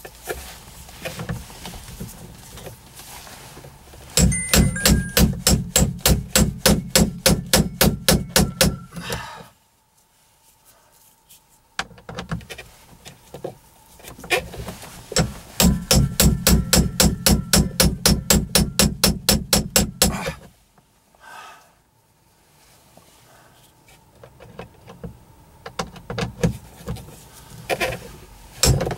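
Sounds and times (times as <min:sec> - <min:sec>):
ratchet tool clicking: 0:15.6 - 0:20.0.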